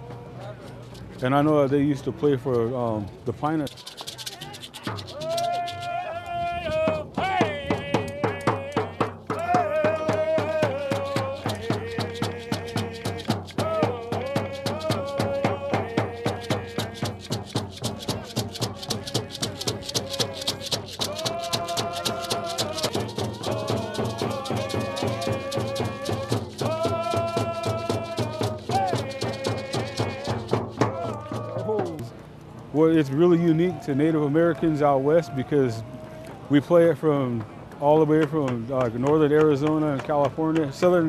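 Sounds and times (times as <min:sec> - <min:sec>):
hand drums beating: 0:03.7 - 0:32.2
group singing: 0:05.2 - 0:32.0.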